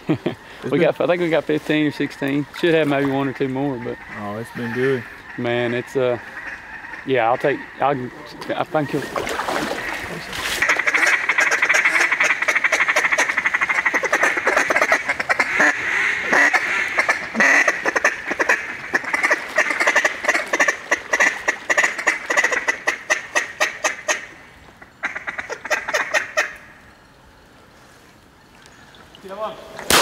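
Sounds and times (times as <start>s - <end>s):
duck call quacks: 10.6s - 24.3s, 25.0s - 26.6s.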